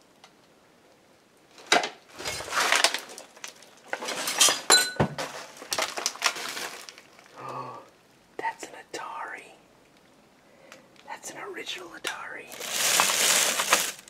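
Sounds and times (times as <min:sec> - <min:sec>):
glass and metal junk clattering: 0:02.2 - 0:06.8
ringing glass clink: 0:04.7 - 0:05.1.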